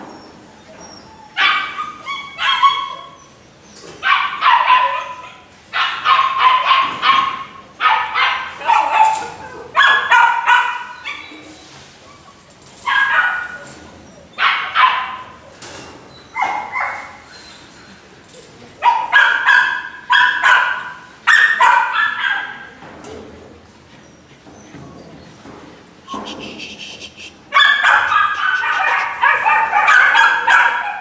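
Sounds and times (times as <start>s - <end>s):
dog barking: 4.0s - 11.2s, 12.9s - 13.6s, 14.4s - 15.4s, 18.8s - 22.8s, 27.5s - 31.0s.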